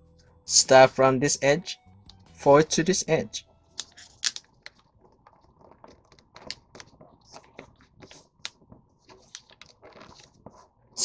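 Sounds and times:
paper rustling and creasing: 0:03.9 - 0:10.9.

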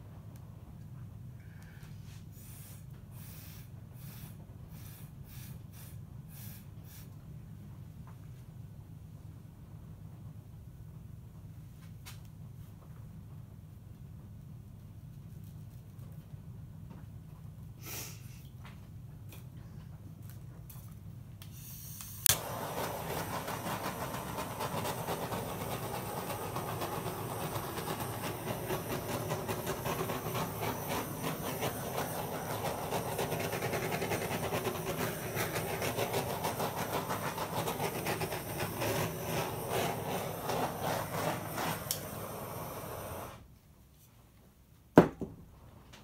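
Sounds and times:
torch ignition clicks: 0:21.4 - 0:35.6, 0:41.5 - 0:42.2
torch flame hissing: 0:21.5 - 0:43.5.

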